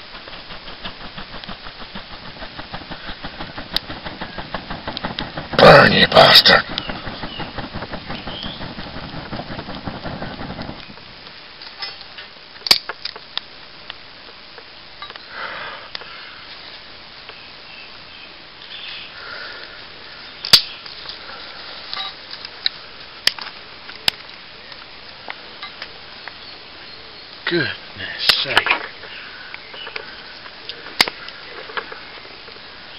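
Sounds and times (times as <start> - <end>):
fast rustling patter: 0.0 - 11.3
fire snapping: 0.0 - 11.8, 12.5 - 14.0
tinder fire crackling: 0.0 - 17.4, 18.5 - 32.9.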